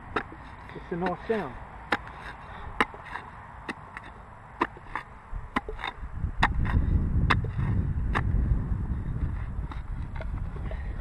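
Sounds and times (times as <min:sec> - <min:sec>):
spade chopping into dry soil: 0:00.0 - 0:08.4.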